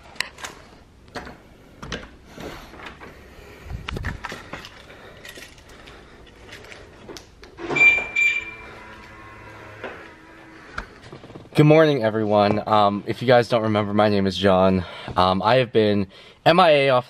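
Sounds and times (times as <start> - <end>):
short high electronic beeps: 7.8 - 8.6.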